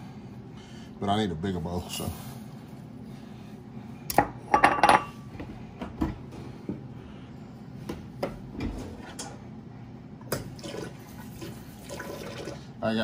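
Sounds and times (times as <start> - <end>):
dishes clattering: 4.2 - 5.2.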